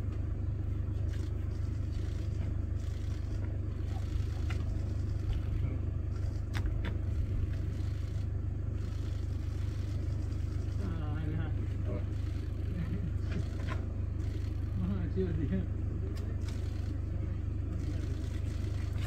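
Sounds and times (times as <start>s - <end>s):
vehicle engine idling: 0.0s - 19.0s.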